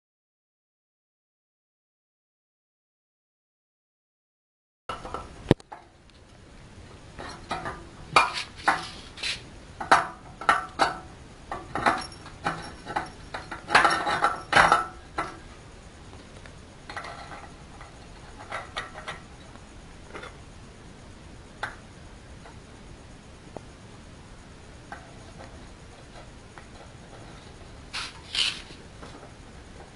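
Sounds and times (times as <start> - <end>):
metal parts clinking and scraping: 7.2 - 9.4, 11.7 - 15.4, 26.8 - 28.8.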